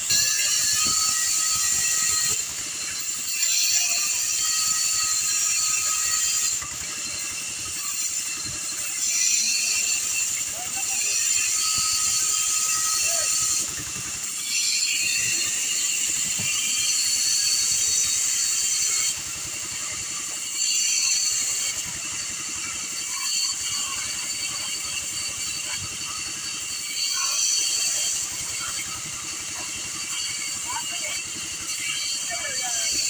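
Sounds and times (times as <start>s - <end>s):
bandsaw cutting wood: 0.0s - 33.0s.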